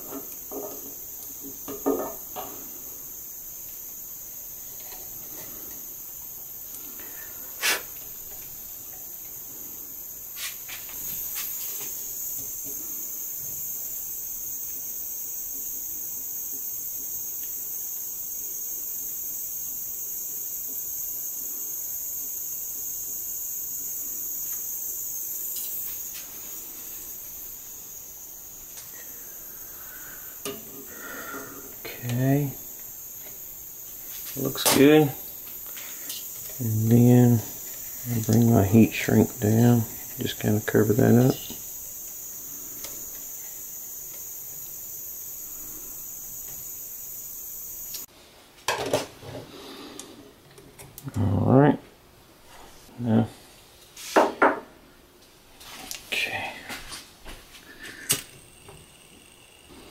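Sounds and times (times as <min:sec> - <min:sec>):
high-pitched whine: 0:57.9 - 0:59.9.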